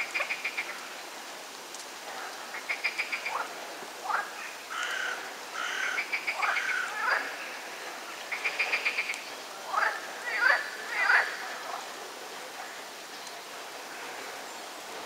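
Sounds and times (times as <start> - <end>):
frogs croaking: 0.0 - 1.0, 2.4 - 11.9.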